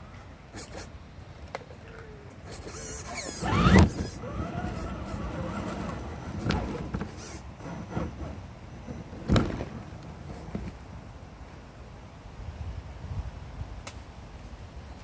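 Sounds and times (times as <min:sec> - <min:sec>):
rc car motor whining: 0:02.4 - 0:08.4.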